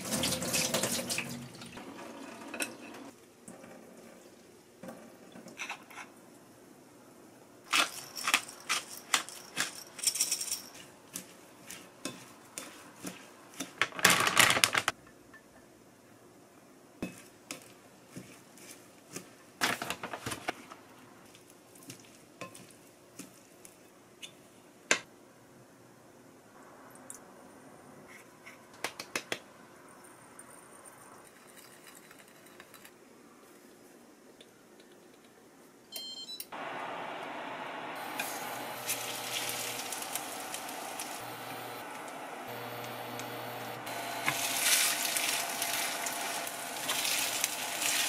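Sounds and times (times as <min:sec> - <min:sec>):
utensils clinking on glass bowl: 0:07.7 - 0:10.9.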